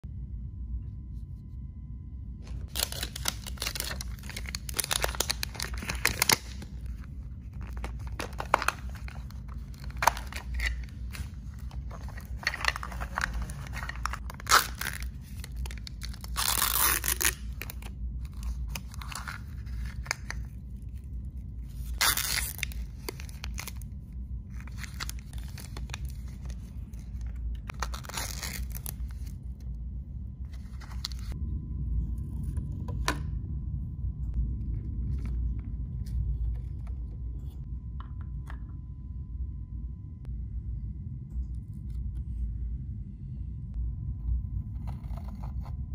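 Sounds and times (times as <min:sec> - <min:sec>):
low steady hum: 0:00.0 - 0:45.9
plastic wrappers crinkling and tearing: 0:02.7 - 0:20.5, 0:21.9 - 0:23.8, 0:24.5 - 0:29.3.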